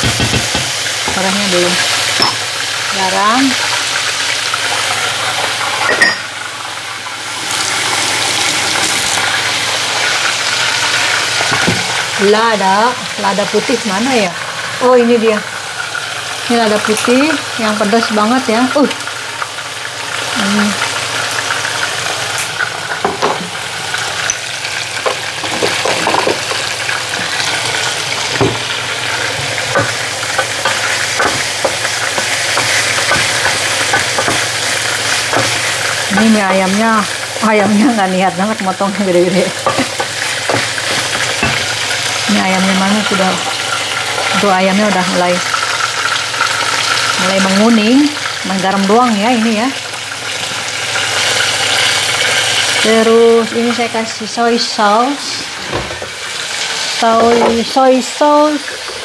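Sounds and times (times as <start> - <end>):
utensil knocking pan: 0.0 - 1.4, 2.1 - 2.5, 22.9 - 23.6, 28.2 - 36.9, 39.3 - 42.0, 57.0 - 57.9
chicken sizzling in a pan: 0.0 - 59.0.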